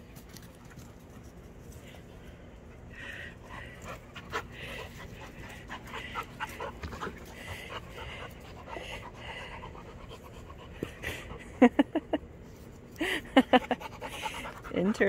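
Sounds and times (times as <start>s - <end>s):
puppy panting: 2.7s - 12.2s, 13.4s - 15.0s.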